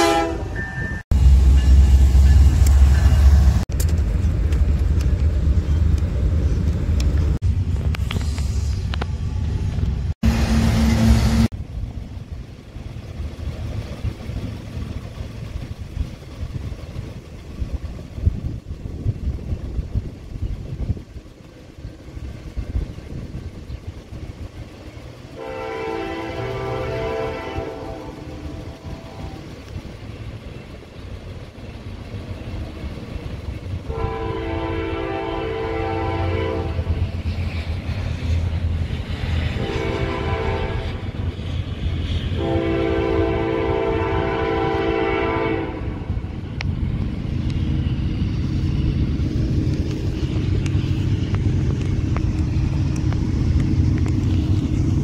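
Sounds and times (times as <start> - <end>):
locomotive air horn: 0.0 - 1.0, 10.2 - 11.5, 25.3 - 29.6, 33.9 - 37.1, 39.5 - 46.2
train rumble: 0.0 - 55.0.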